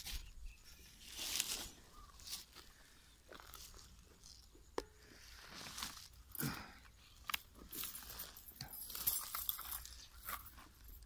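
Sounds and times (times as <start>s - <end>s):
footsteps through grass: 0.0s - 4.5s, 5.3s - 6.3s.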